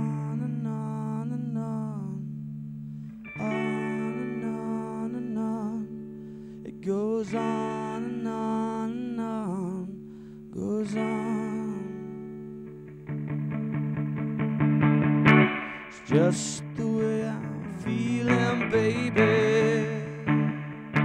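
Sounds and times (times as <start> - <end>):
man singing: 0.0 - 2.3, 3.3 - 12.3, 15.9 - 20.6
electric guitar: 0.0 - 21.0.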